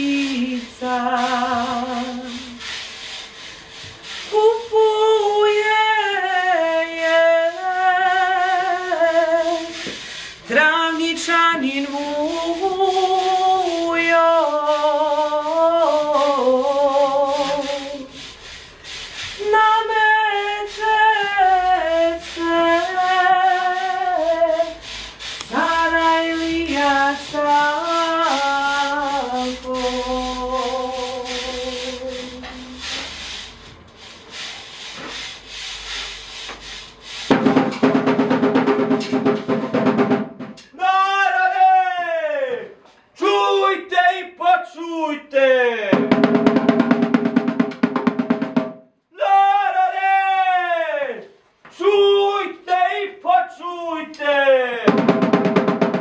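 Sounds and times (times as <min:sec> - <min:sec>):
woman singing unaccompanied: 0:00.0 - 0:02.6, 0:04.3 - 0:09.8, 0:10.5 - 0:18.1, 0:19.4 - 0:24.8, 0:25.4 - 0:32.8.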